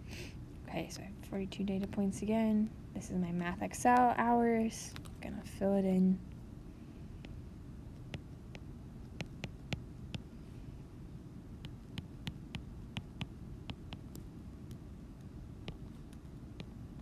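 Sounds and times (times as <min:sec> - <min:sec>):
low steady hum: 0:00.0 - 0:17.0
stylus tapping on glass screen: 0:09.2 - 0:10.3.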